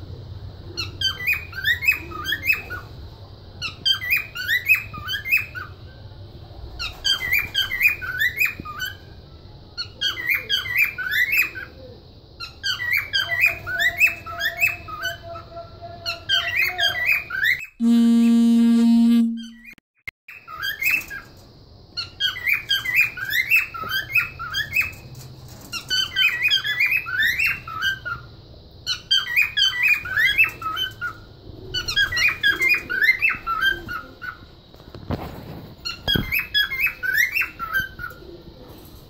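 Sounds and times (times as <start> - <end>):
cockatiels chirping and warbling: 6.8 - 9.0, 9.8 - 11.7, 12.4 - 15.2, 25.7 - 28.3, 28.9 - 34.4, 35.8 - 38.2.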